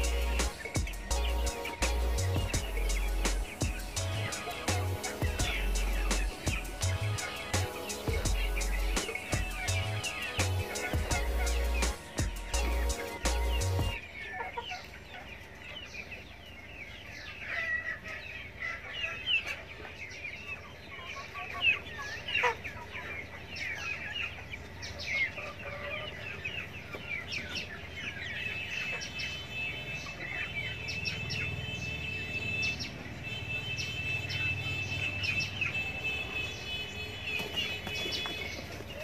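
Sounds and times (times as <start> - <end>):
background music: 0.0 - 14.0
chicken squawks: 0.0 - 15.3, 17.2 - 24.4, 25.0 - 29.4
chickens clucking and peeping: 0.0 - 39.0.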